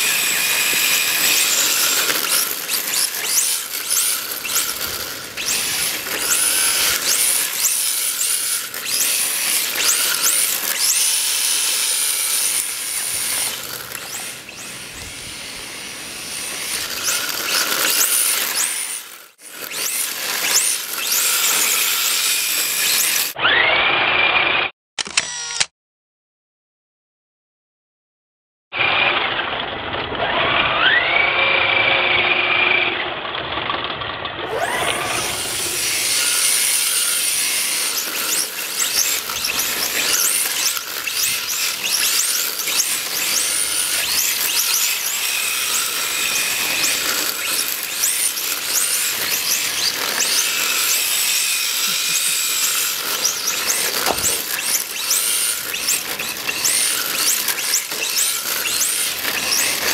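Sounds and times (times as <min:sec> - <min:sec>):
electric motors whining: 0:00.0 - 0:23.8, 0:34.4 - 0:59.9
tyres squealing on asphalt: 0:34.5 - 0:59.9.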